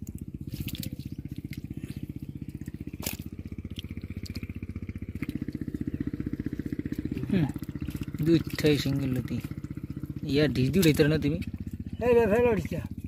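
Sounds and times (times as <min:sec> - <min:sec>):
pump engine thudding: 0:00.0 - 0:11.9.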